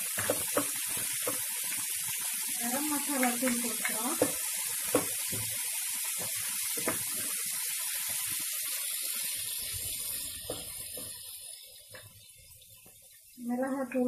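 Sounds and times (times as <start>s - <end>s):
spatula knocking and scraping pan: 0.0s - 1.5s, 3.2s - 5.5s, 6.2s - 7.3s, 10.4s - 11.2s
chicken sizzling in hot oil: 0.0s - 14.0s.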